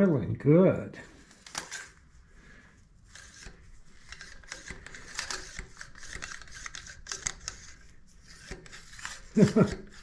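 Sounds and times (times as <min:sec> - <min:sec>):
brush scraping and clicking: 0:03.0 - 0:10.0.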